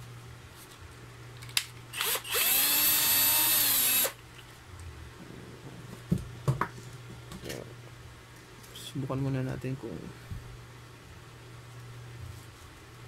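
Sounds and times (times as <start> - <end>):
cordless drill motor whine: 2.0 - 4.2.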